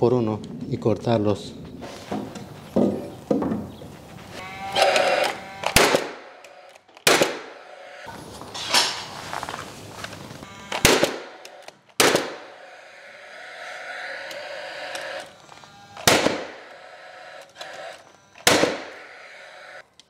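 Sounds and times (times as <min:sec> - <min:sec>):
nail gun bangs: 0:04.8 - 0:06.3, 0:07.0 - 0:07.5, 0:10.7 - 0:12.5, 0:16.0 - 0:16.6, 0:18.4 - 0:19.0.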